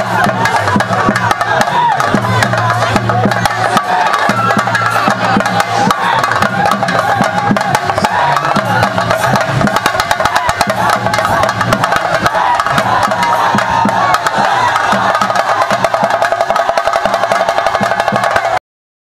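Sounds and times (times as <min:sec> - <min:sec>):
crowd shouting and cheering: 0:00.0 - 0:18.6
fast drumming with sticks: 0:00.0 - 0:18.6.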